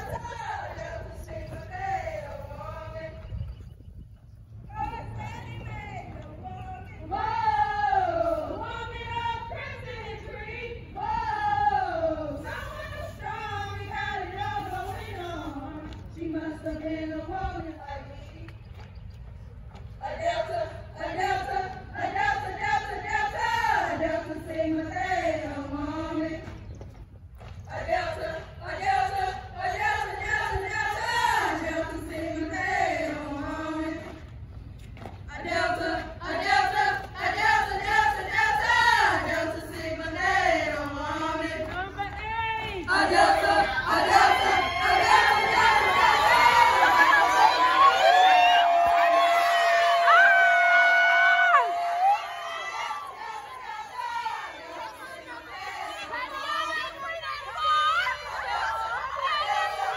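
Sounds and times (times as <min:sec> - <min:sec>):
women singing together: 0:00.0 - 0:03.6, 0:04.6 - 0:18.9, 0:19.8 - 0:26.9, 0:27.6 - 0:59.9
group chanting in unison: 0:42.8 - 0:48.1, 0:51.5 - 0:59.9.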